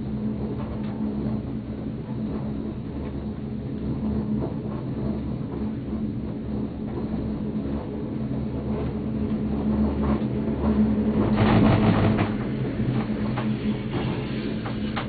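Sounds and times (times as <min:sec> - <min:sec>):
gondola cabin mechanical hum: 0:00.0 - 0:15.0
rattling and knocks: 0:08.7 - 0:15.0.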